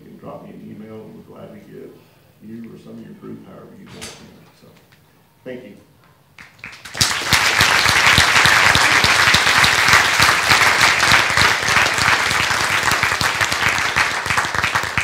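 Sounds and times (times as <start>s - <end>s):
audience applauding: 6.4s - 15.0s.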